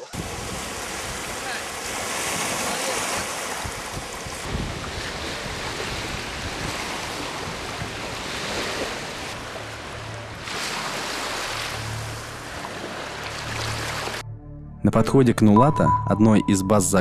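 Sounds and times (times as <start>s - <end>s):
small waves on pebble shore: 0.0s - 14.2s
wind on microphone: 0.1s - 9.4s.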